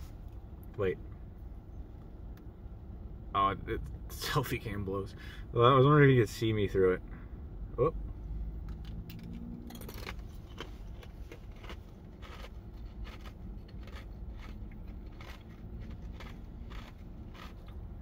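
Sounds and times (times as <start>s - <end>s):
steady low rumble: 0.0s - 18.0s
ice being chewed: 9.7s - 17.8s.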